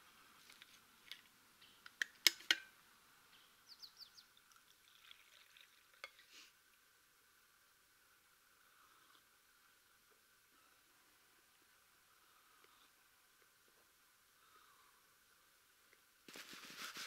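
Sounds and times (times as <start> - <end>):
liquid trickling into cup: 4.5 - 6.2.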